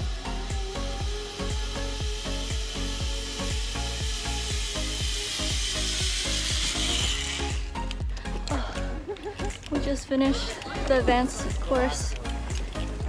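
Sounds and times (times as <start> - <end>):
zipline trolley whirring on cable: 0.0 - 8.0
music with steady beat: 0.0 - 13.0.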